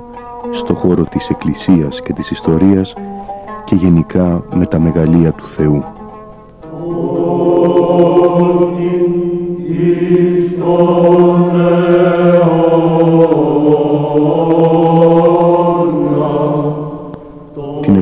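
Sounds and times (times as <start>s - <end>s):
held drone note: 0.0s - 18.0s
voices chanting a hymn: 6.6s - 18.0s.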